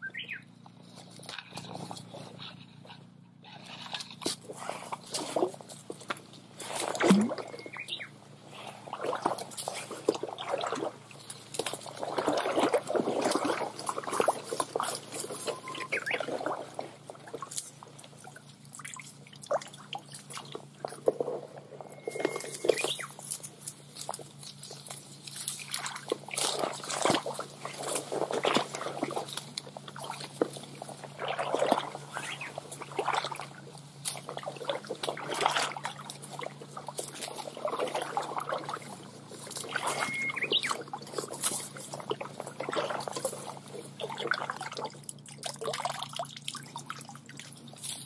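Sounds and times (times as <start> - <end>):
creek water splashing: 3.7 - 48.0.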